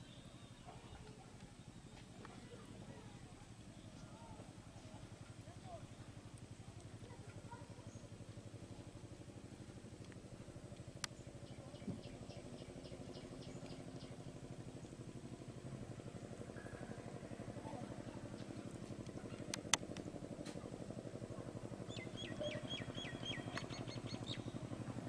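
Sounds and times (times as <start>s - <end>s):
low pulsing motor hum: 0.0s - 25.0s
bird chirping: 11.1s - 14.2s, 21.9s - 24.6s.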